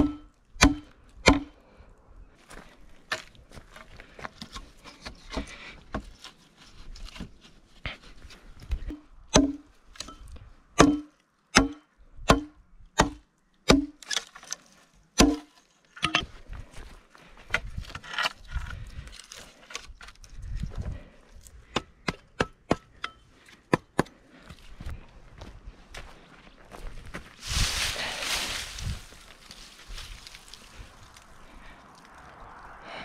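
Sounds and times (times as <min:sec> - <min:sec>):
footsteps through dry leaves: 0:26.8 - 0:31.4.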